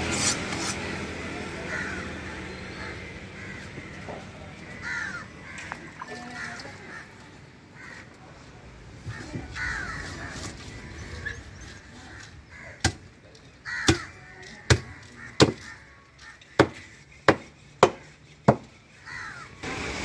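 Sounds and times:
cleaver chopping fish on wood: 0:12.8 - 0:13.1, 0:13.8 - 0:14.1, 0:14.7 - 0:15.7, 0:16.6 - 0:18.7.

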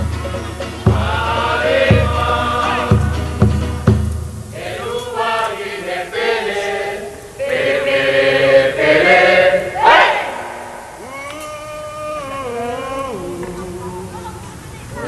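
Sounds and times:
deep drum beat: 0:00.0 - 0:04.6
low drum rumble: 0:00.0 - 0:04.8
group chanting in unison: 0:00.8 - 0:03.4, 0:04.5 - 0:11.2.

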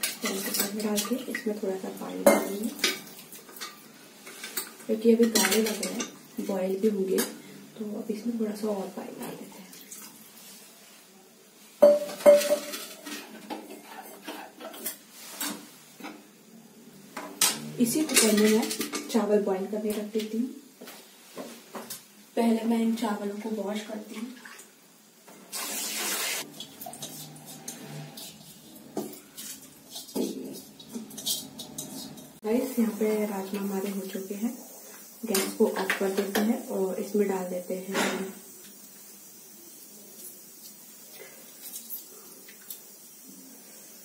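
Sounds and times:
steel bowl clinking and scraping: 0:00.0 - 0:01.5, 0:11.8 - 0:15.6, 0:26.5 - 0:32.4
ladle stirring metal pan: 0:00.0 - 0:07.4, 0:11.8 - 0:16.2, 0:25.5 - 0:34.4.

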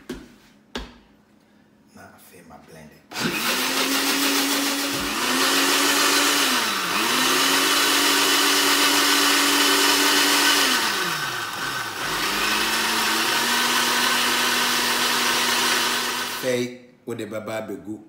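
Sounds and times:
blender motor running: 0:03.1 - 0:16.5.

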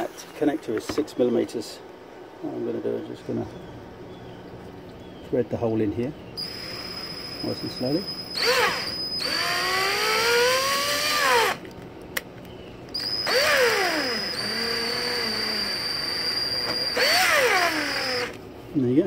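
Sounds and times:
power drill motor whine: 0:06.4 - 0:11.6, 0:12.9 - 0:18.4.

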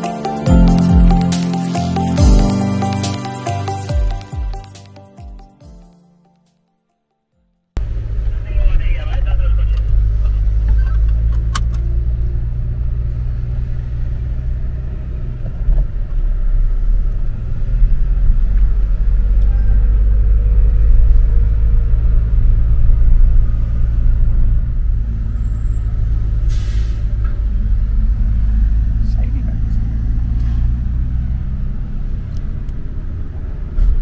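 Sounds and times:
car engine and tyre rumble: 0:07.8 - 0:34.0.

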